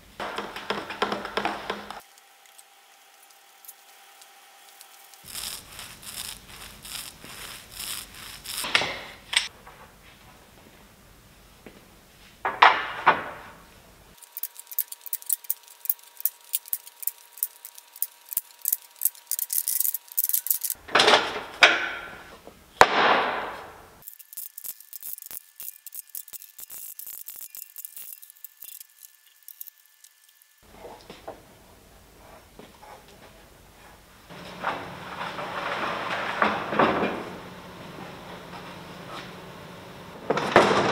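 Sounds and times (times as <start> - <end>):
wooden strips knocking and clattering: 0.2 - 2.0, 12.5 - 13.5, 34.3 - 37.4
glue roller rubbing on wood: 4.7 - 9.0, 14.2 - 20.8.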